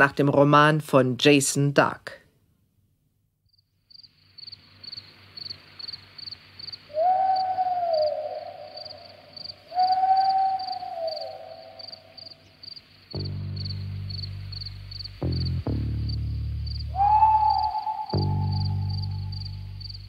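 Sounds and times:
crickets chirping: 0:03.5 - 0:20.0
long gliding calls: 0:06.6 - 0:12.6, 0:16.7 - 0:20.0
low hum: 0:13.2 - 0:20.0.

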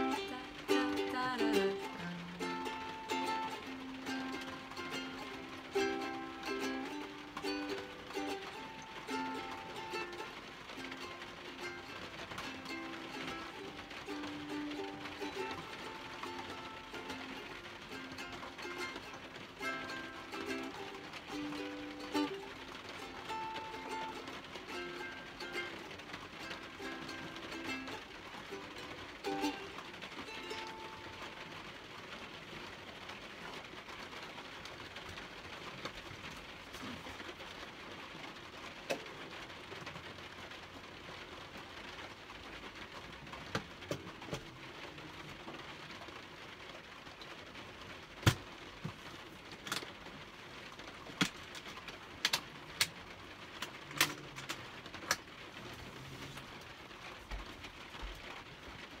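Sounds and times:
ukulele note: 0:00.0 - 0:31.4
rain on a van roof: 0:00.0 - 0:59.0.

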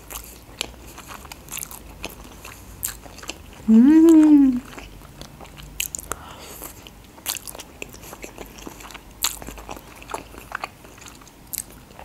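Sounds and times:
person chewing noodles: 0:00.0 - 0:12.0
person humming: 0:03.7 - 0:04.7.

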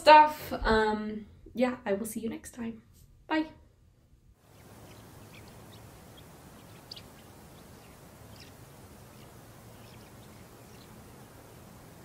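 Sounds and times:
low outdoor background noise: 0:03.1 - 0:12.0
faint birds chirping: 0:04.4 - 0:12.0.

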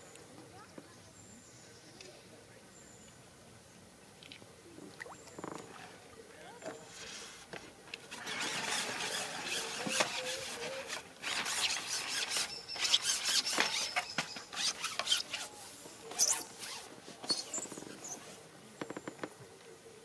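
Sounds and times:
fishing pole sections scraping: 0:06.7 - 0:18.4
brief squeak: 0:11.4 - 0:15.5, 0:16.1 - 0:18.3.

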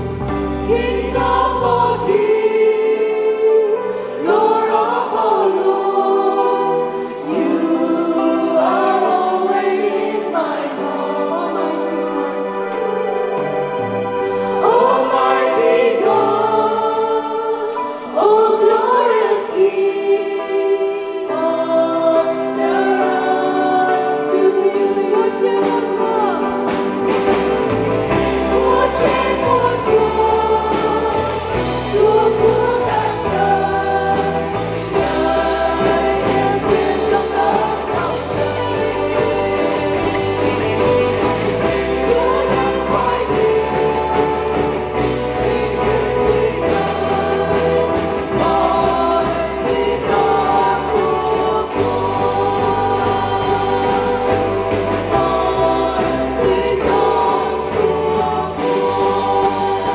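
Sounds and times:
bass line: 0:00.0 - 0:02.4, 0:27.0 - 0:59.9
choir singing: 0:00.0 - 0:59.9
drum beats: 0:25.6 - 0:59.9.

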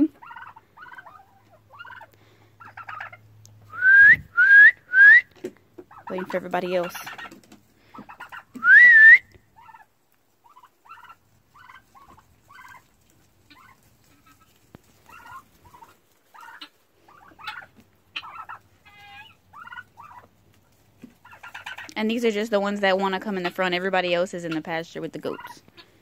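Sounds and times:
poultry calling: 0:00.0 - 0:03.9, 0:05.4 - 0:22.0, 0:23.1 - 0:26.0
loud rising whistle-like call: 0:03.7 - 0:05.2, 0:08.6 - 0:09.4.

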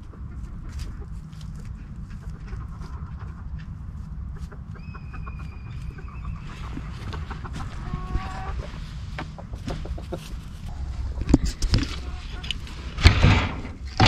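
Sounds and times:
chickens clucking: 0:00.0 - 0:14.0
low rumble: 0:00.0 - 0:14.0
high held chicken call: 0:04.8 - 0:06.7.

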